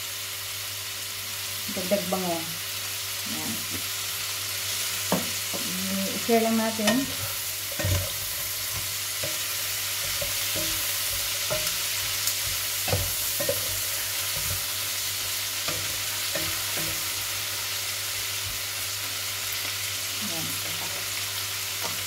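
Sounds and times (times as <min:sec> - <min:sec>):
meat and vegetables sizzling: 0:00.0 - 0:22.0
spatula scraping a pan: 0:06.7 - 0:17.3.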